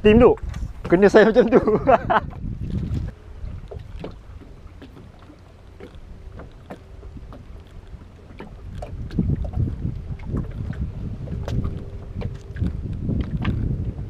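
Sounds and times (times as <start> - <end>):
low steady rumbling: 0.0 - 14.0.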